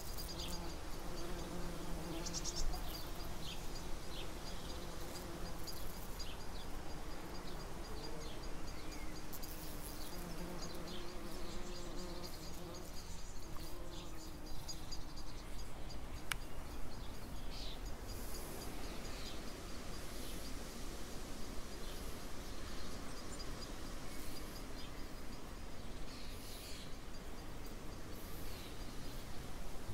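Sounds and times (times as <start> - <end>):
bumblebee buzzing: 0.0 - 15.0.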